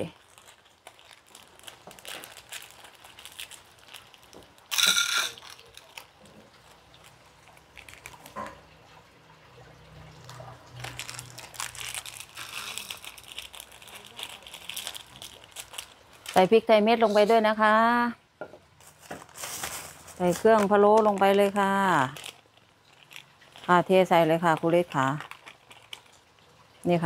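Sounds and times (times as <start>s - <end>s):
garlic sizzling in hot lard: 10.2s - 18.0s.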